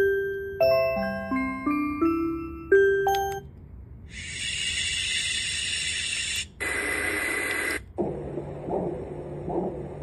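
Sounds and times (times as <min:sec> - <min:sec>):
chime lullaby note: 0:00.0 - 0:03.5.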